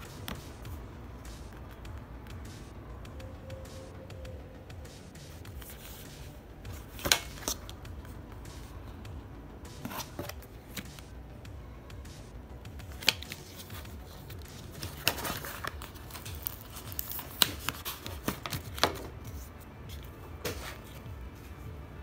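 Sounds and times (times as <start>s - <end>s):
card clicks and taps: 0.1s - 0.6s, 6.8s - 7.8s, 9.8s - 11.1s, 12.9s - 19.2s
paper rustling and sliding: 13.0s - 21.5s.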